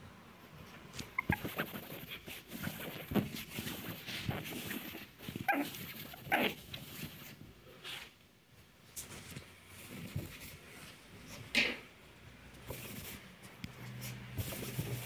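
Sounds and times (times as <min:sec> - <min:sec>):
cloth rustling: 0:01.0 - 0:08.2, 0:12.6 - 0:15.0.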